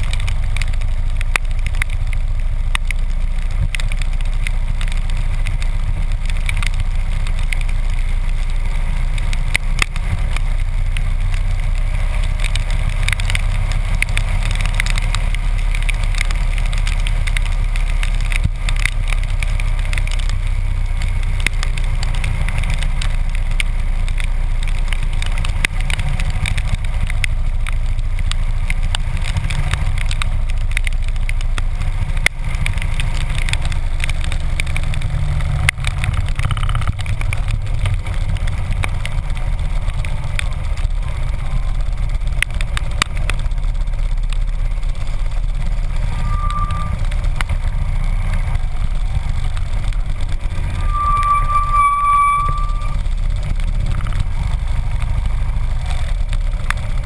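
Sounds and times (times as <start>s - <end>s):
motorcycle engine running: 0.0s - 57.0s
raindrops clicking on camera: 0.0s - 57.0s.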